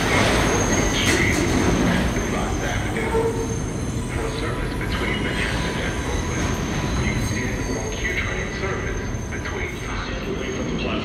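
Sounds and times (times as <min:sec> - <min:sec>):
subway train wheels rumbling on rails: 0:00.0 - 0:11.0
train wheel squeal: 0:00.0 - 0:11.0.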